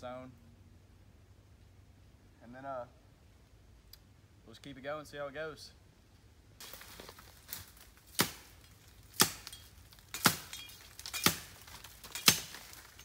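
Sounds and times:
machete chopping tree trunk: 8.1 - 13.0.

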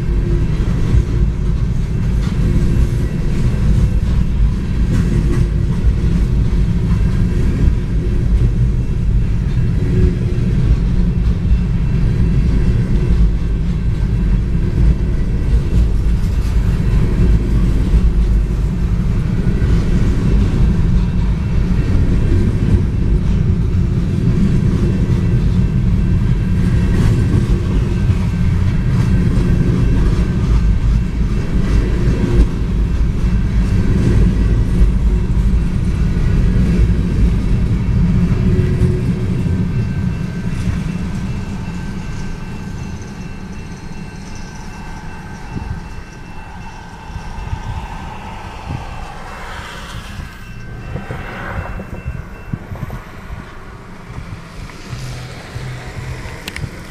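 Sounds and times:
freight train rumbling past: 0.0 - 56.9
crossing warning bell ringing: 37.0 - 56.9.

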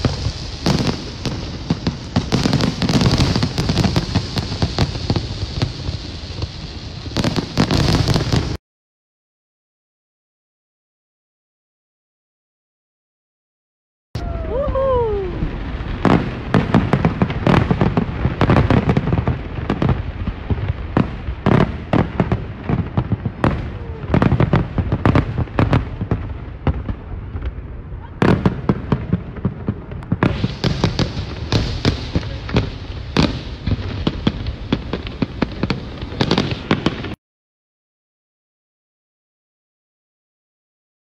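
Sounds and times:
firework crackling: 0.0 - 8.6, 14.2 - 37.2.

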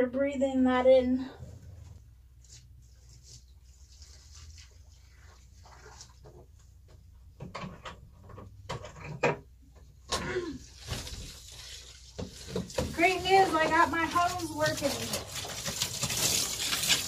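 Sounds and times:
faint knocks and clatter: 5.7 - 10.2.

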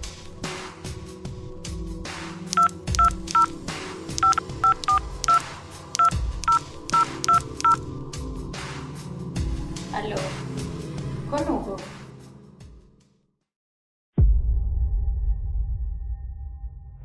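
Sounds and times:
touch-tone dialling beeps: 2.6 - 3.6, 4.2 - 5.4, 6.0 - 7.8.

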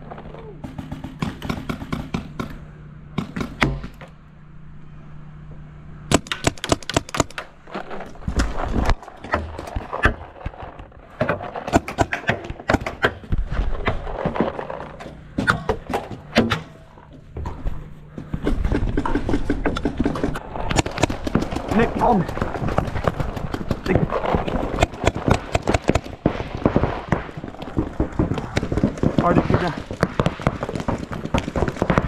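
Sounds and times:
paintball markers firing: 0.6 - 2.6, 6.1 - 7.5, 18.7 - 32.0.

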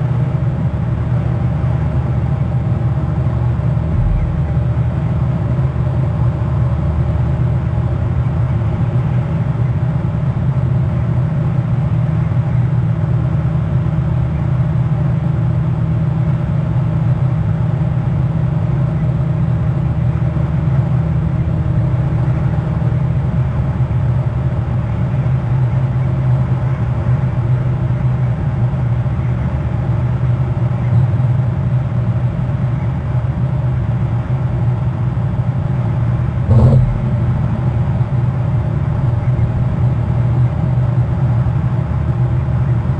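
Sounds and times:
low droning hum: 0.0 - 13.4, 31.8 - 42.9
brief knock: 36.5 - 37.8.

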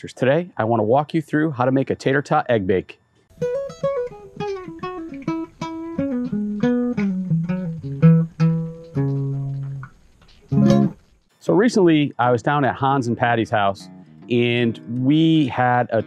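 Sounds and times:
plucked guitar notes: 3.3 - 11.0, 13.7 - 16.0.

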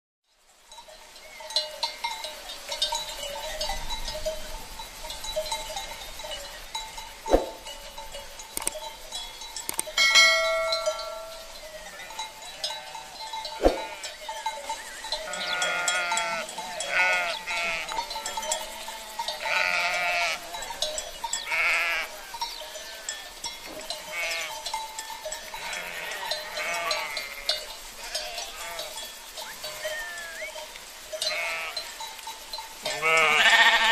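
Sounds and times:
sharp knocks: 7.3 - 7.6
sheep bleating: 15.2 - 20.8, 21.4 - 23.1, 24.0 - 24.6, 25.6 - 29.0, 29.6 - 30.6, 31.2 - 31.9, 32.9 - 33.9
brief ringing tone: 29.4 - 30.6.

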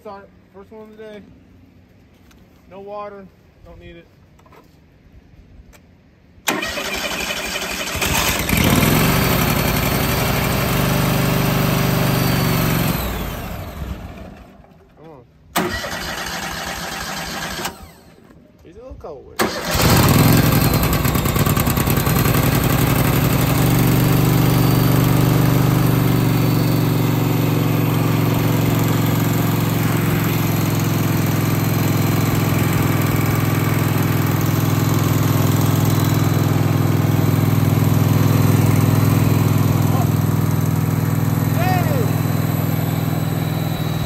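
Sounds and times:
sawmill engine running: 6.5 - 14.9, 19.4 - 44.0.

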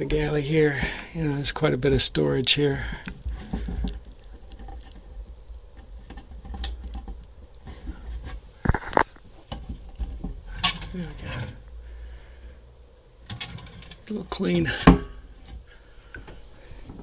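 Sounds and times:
hands rustling and scraping: 0.1 - 11.9.

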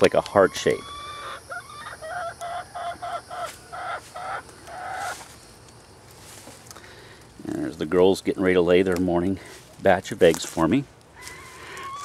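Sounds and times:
hen clucking: 0.0 - 5.7, 11.2 - 12.0.

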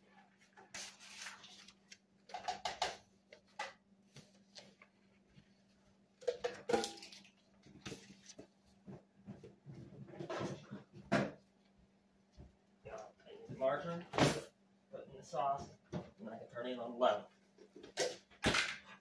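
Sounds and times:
cookware and utensils clinking: 6.2 - 7.4.

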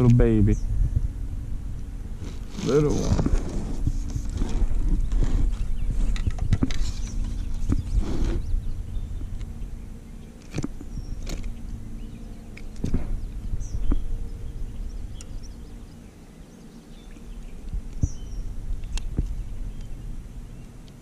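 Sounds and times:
low steady rumble: 0.0 - 21.0
faint bird chirps: 5.5 - 20.8.

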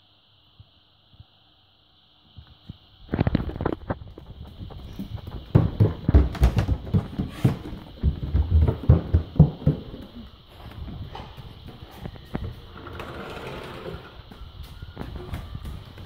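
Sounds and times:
footsteps running on tiles and stairs: 3.8 - 12.8, 14.1 - 16.0.

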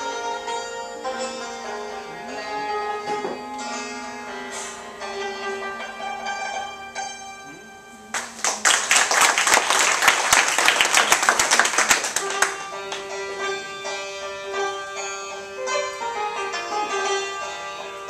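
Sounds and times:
santur notes struck: 0.0 - 8.1, 12.3 - 18.0
loud hand clapping: 8.1 - 13.2.

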